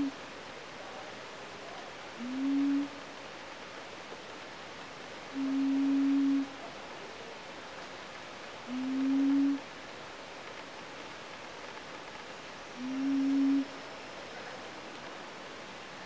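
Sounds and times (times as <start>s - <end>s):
low hooting notes: 12.8s - 13.8s.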